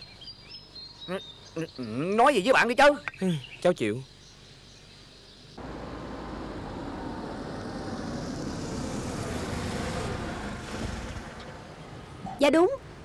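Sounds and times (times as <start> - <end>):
vehicle approaching: 5.6 - 12.4.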